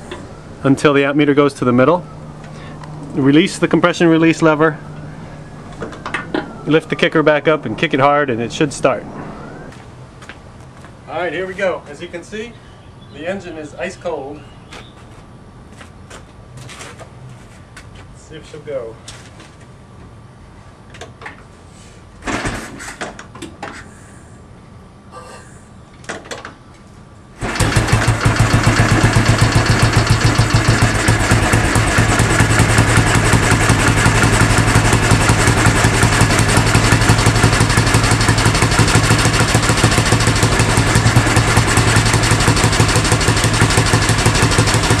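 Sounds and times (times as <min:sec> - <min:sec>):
motorcycle engine running: 0:27.4 - 0:45.0.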